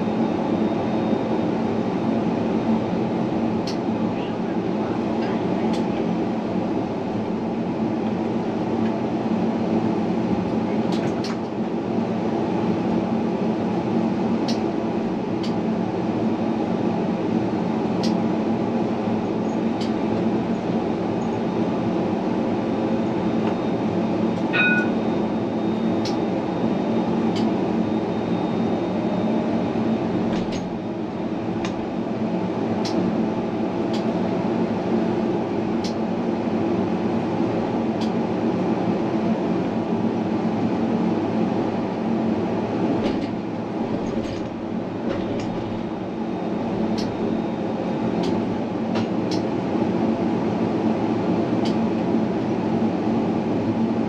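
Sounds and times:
tram rolling rumble: 0:00.0 - 0:54.0
short electronic beep: 0:24.5 - 0:25.0.

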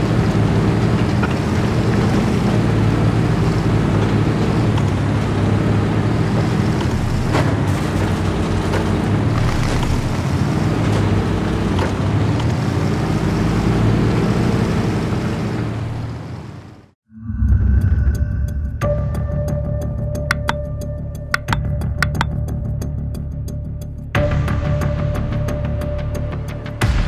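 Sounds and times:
tyres clicking on stones: 0:20.3 - 0:20.7, 0:21.4 - 0:22.4.

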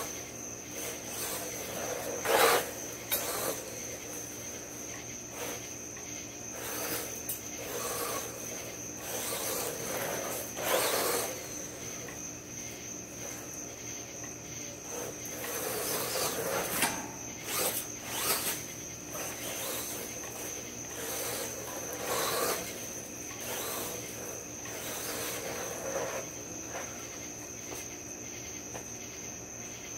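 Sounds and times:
tyres on dirt: 0:00.0 - 0:13.8, 0:14.5 - 0:28.0
rc car motor whine: 0:00.0 - 0:28.0
crickets chirping: 0:00.0 - 0:29.9.

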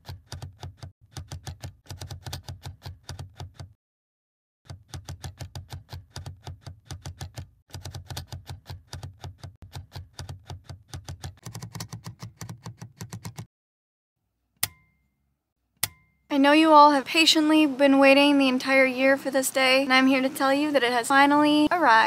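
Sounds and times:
keyboard typing clicks: 0:04.7 - 0:13.5
sharp click with ringing tone: 0:14.6 - 0:15.2, 0:15.8 - 0:16.2.

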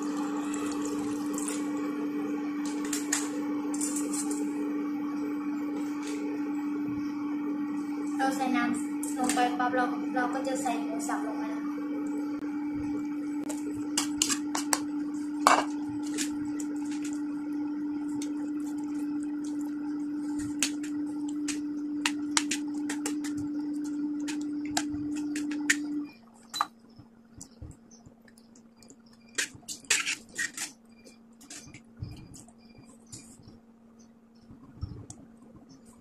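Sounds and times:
steady hum: 0:00.0 - 0:36.0
metal spoon scraping a steel pan: 0:29.4 - 0:30.8.

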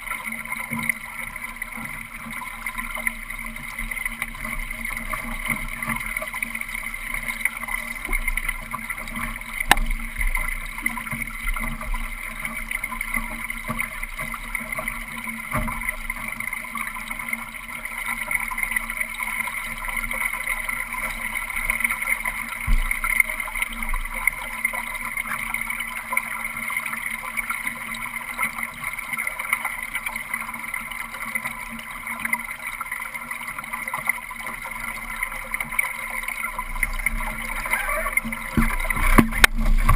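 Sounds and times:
water rushing along a hull: 0:00.0 - 0:39.9
boat knocks: 0:09.2 - 0:11.9, 0:22.6 - 0:23.1.

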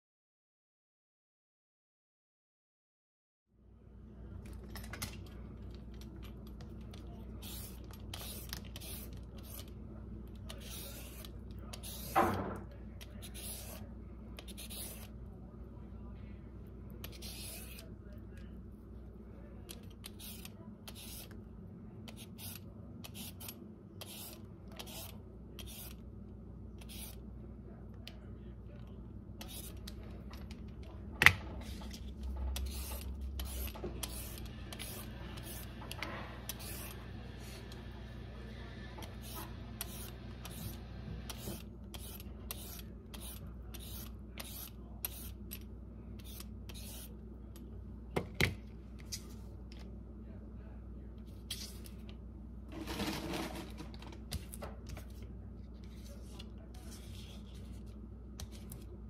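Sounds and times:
peeler scraping carrot: 0:06.9 - 0:09.8, 0:10.4 - 0:12.3, 0:14.4 - 0:15.1, 0:17.0 - 0:17.8, 0:19.8 - 0:21.4, 0:22.1 - 0:26.0, 0:26.8 - 0:27.2, 0:31.6 - 0:37.8, 0:39.0 - 0:45.6, 0:46.2 - 0:47.1.

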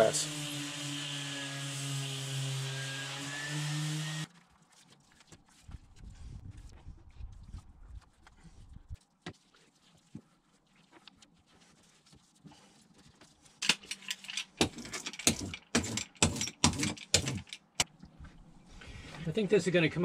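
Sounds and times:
scratchy brush strokes: 0:04.3 - 0:13.6.

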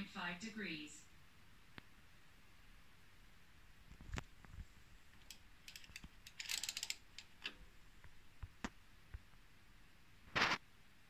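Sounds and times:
light mechanical clicks: 0:05.2 - 0:07.6.

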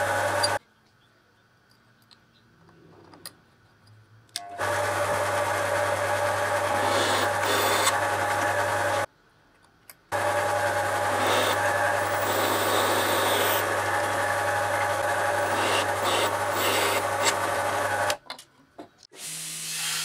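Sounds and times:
drill press motor humming: 0:04.6 - 0:09.1, 0:10.1 - 0:18.2
drill bit cutting brass: 0:06.7 - 0:07.9, 0:11.1 - 0:13.7, 0:15.4 - 0:17.4.

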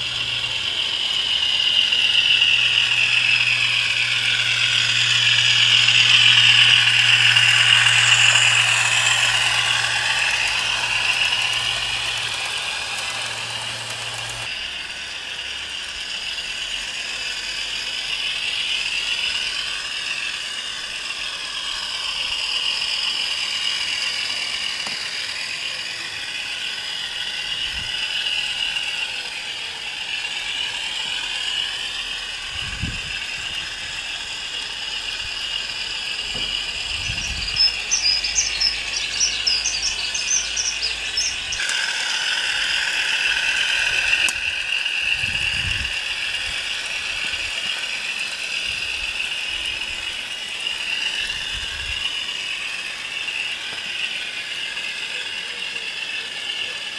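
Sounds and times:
rapid sharp clicks: 0:00.0 - 0:14.6, 0:35.1 - 0:51.1
tinny diesel engine sound: 0:00.0 - 0:56.9.

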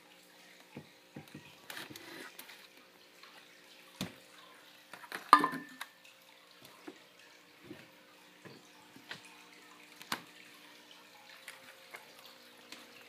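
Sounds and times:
faint steady hum: 0:00.0 - 0:13.0
kitchen items clicking and knocking: 0:05.2 - 0:05.8.

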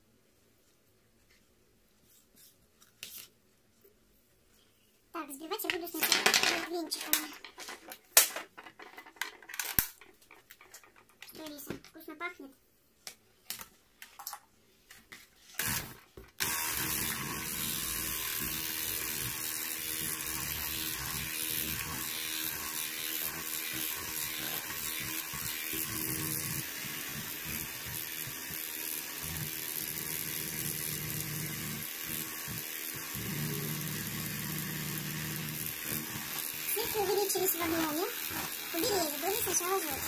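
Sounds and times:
electric hand mixer whipping cream: 0:15.6 - 0:40.0.

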